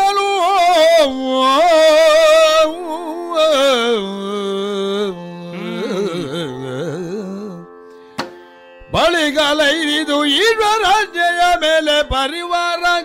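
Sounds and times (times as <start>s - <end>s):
person singing ornamented melody: 0.0s - 8.0s, 8.9s - 13.0s.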